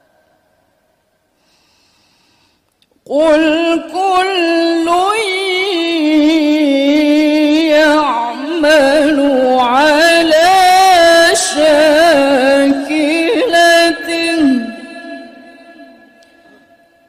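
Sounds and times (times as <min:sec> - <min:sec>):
woman reciting melodically: 0:03.1 - 0:16.6.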